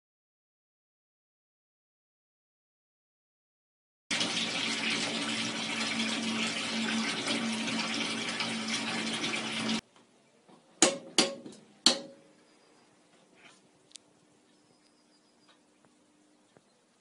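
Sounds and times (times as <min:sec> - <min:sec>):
water gushing into washtub: 0:04.1 - 0:09.8.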